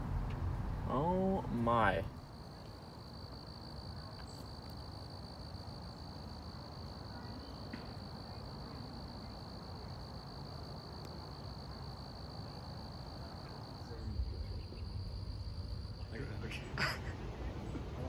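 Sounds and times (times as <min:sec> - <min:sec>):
low rumble: 0:00.0 - 0:02.3
insects chirping: 0:00.0 - 0:18.0.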